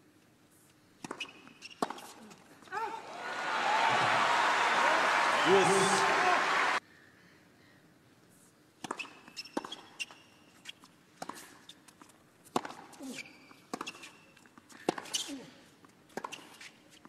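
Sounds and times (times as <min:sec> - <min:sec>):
shoe squeaks: 0:01.1 - 0:02.3, 0:08.9 - 0:10.9, 0:13.0 - 0:15.5, 0:16.2 - 0:17.0
tennis ball bouncing on court: 0:13.7 - 0:14.2.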